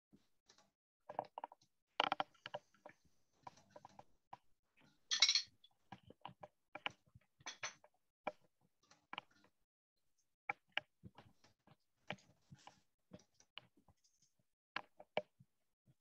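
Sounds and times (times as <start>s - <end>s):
hard objects clicking and clinking: 5.1s - 5.5s.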